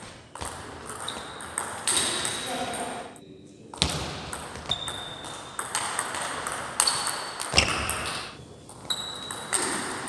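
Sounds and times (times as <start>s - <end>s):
table tennis ball hits: 0.4s - 2.5s, 3.8s - 8.4s, 9.2s - 10.0s.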